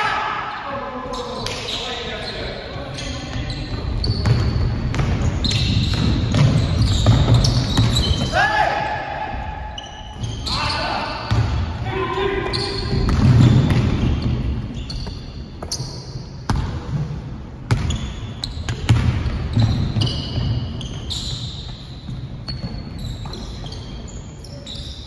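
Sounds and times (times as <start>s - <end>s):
sneaker squeaks: 0.4s - 17.0s, 17.7s - 25.0s
basketball bouncing on hardwood: 12.9s - 14.3s, 17.7s - 18.0s, 18.7s - 20.6s.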